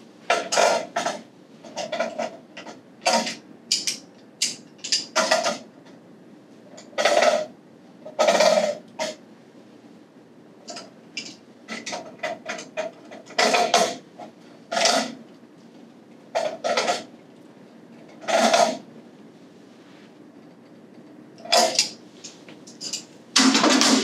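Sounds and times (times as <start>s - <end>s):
metal tools clanking on pipes: 0.3s - 5.6s, 10.7s - 14.0s, 21.4s - 24.0s.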